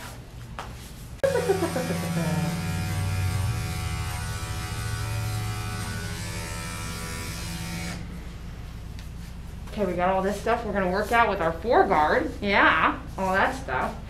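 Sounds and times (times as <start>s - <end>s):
electric clipper buzzing: 1.2s - 8.2s.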